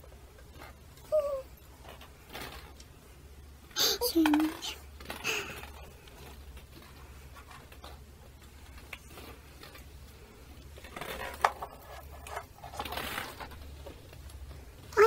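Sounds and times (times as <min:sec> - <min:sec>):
plastic balls clattering: 0:03.7 - 0:15.0.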